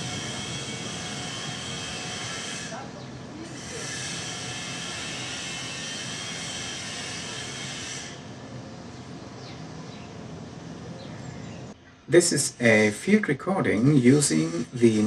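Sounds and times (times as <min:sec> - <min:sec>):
distant machinery hum: 0:00.0 - 0:15.0
steady hiss: 0:12.1 - 0:15.0.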